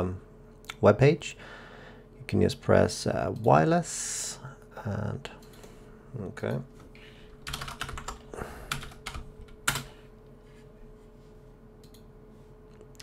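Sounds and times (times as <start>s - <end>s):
faint steady hum: 0.0s - 13.0s
typing on a computer keyboard: 7.4s - 9.9s.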